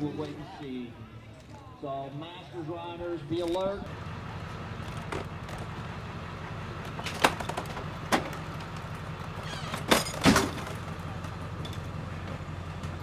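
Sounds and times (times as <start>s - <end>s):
metal stretcher frame clanking: 9.5s - 10.8s.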